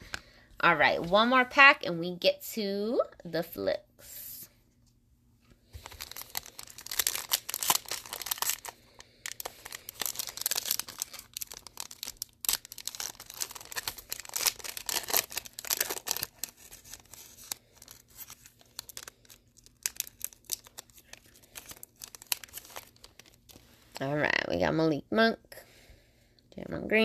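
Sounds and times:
foil wrapper crinkling and tearing: 0:05.7 - 0:24.0.

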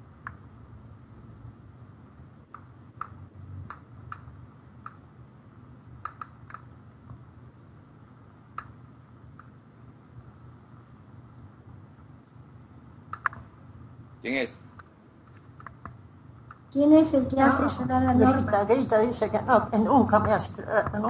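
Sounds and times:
low steady hum: 0:00.0 - 0:21.0
computer clicks: 0:06.0 - 0:06.7, 0:13.1 - 0:13.4.

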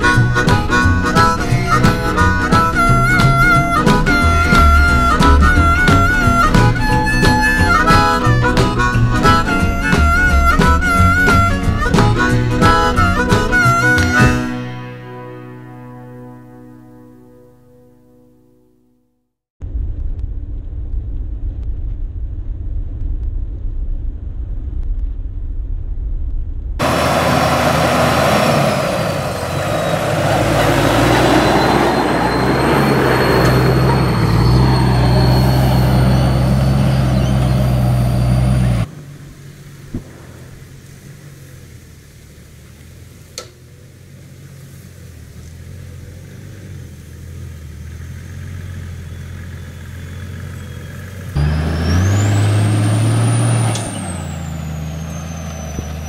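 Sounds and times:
diesel engine running in low gear: 0:00.0 - 0:15.5, 0:26.8 - 0:56.0.

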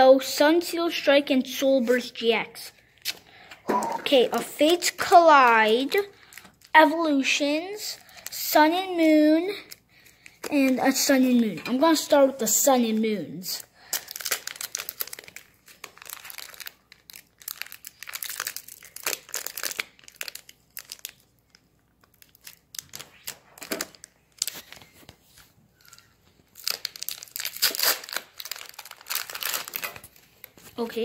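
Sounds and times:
foil wrapper crinkling and tearing: 0:04.4 - 0:06.8, 0:13.7 - 0:25.1, 0:25.8 - 0:30.9.

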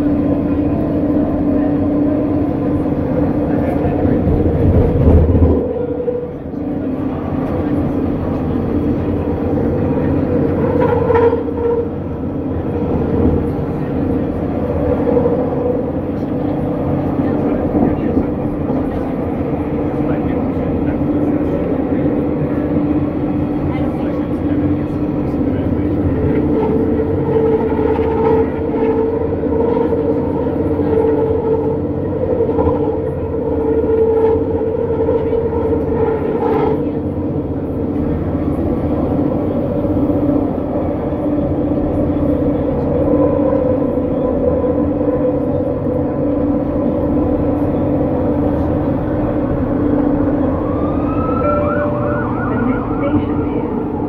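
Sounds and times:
wheels rumbling on rails: 0:00.0 - 0:54.0
rising whine: 0:37.9 - 0:54.0.

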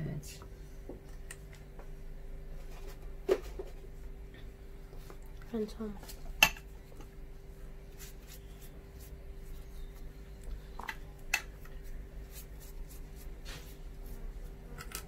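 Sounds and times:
steady low hum: 0:00.0 - 0:15.0
soft rubbing: 0:07.5 - 0:10.2, 0:11.8 - 0:14.6.

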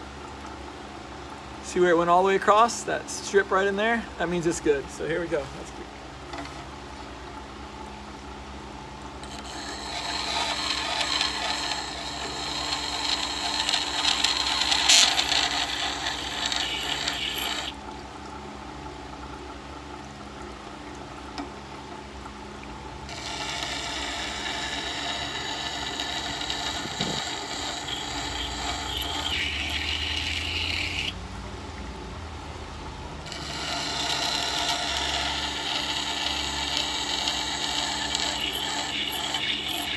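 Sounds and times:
grinder motor hum: 0:09.2 - 0:17.8, 0:23.1 - 0:31.2, 0:32.9 - 0:39.9
grinding stone scraping blade: 0:09.2 - 0:17.8, 0:23.1 - 0:31.2, 0:33.3 - 0:39.9.

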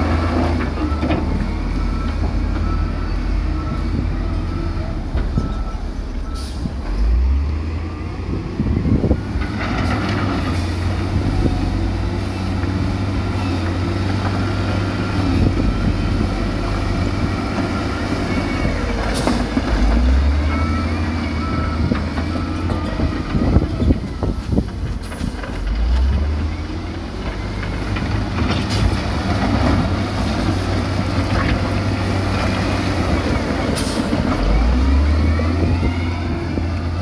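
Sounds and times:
heavy diesel engines rumbling: 0:00.0 - 0:37.0
reversing alarm beeping: 0:00.8 - 0:06.6, 0:20.0 - 0:24.6.

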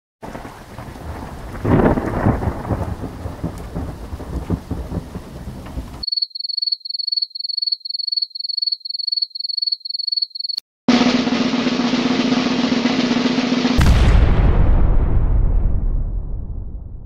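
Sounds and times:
loud thunderclap: 0:00.2 - 0:06.0, 0:10.9 - 0:17.0
rain hiss: 0:00.2 - 0:06.0
rolling thunder: 0:00.2 - 0:06.0, 0:11.8 - 0:17.0
crickets chirping: 0:06.0 - 0:10.6.

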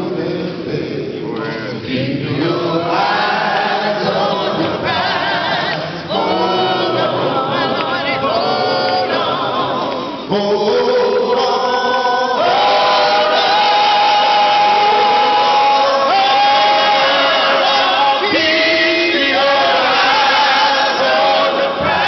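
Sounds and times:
group singing a cappella: 0:00.0 - 0:22.0
man singing into microphone: 0:10.2 - 0:21.0.

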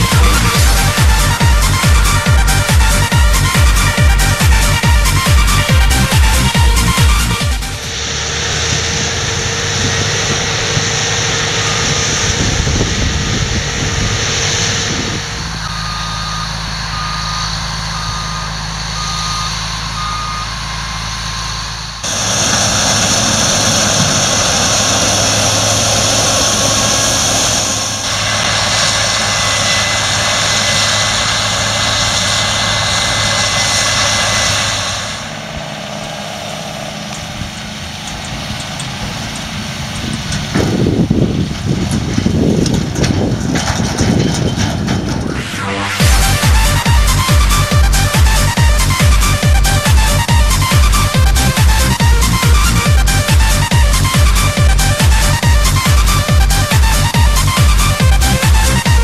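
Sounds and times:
warning beeper beeping: 0:00.0 - 0:22.2, 0:45.2 - 0:59.0
harvester and tractor engines droning: 0:00.0 - 0:59.0.

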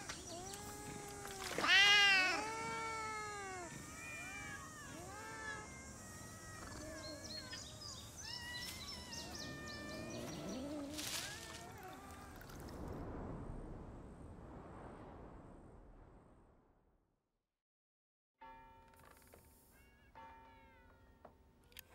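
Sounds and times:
cats meowing: 0:00.0 - 0:12.6.

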